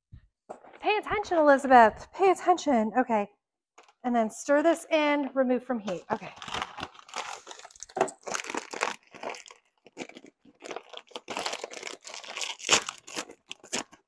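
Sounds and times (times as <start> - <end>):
dry stuffing mix crunching: 6.4 - 14.0.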